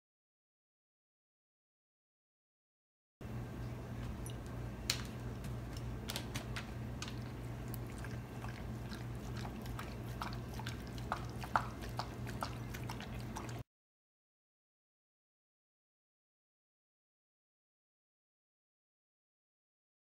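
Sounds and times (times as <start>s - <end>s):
steady low hum: 3.2s - 13.6s
dog chewing food: 4.1s - 13.6s.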